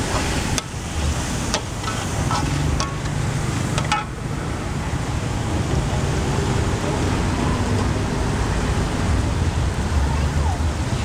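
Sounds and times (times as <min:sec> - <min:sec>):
food sizzling in oil: 0:00.0 - 0:04.1
metal spatula scraping wok: 0:00.0 - 0:04.1.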